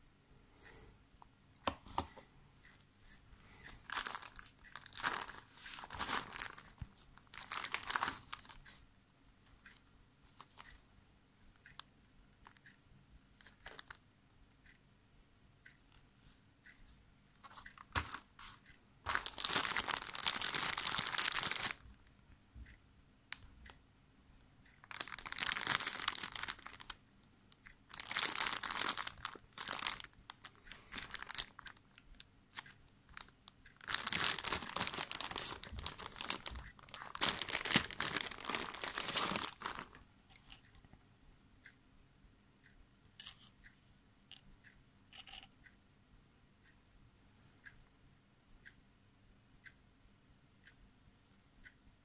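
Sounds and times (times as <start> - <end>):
plastic bag crinkling: 3.7 - 8.6, 19.1 - 21.8, 24.8 - 26.9, 27.9 - 40.5.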